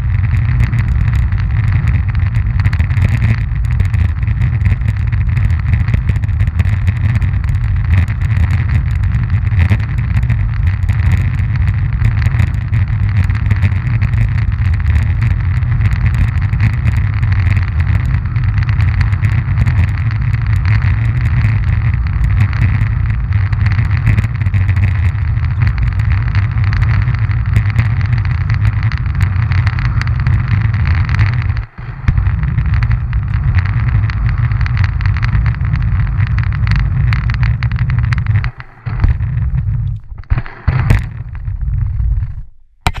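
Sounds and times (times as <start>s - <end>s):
roller-ski wheels rolling on asphalt: 0.0s - 43.0s.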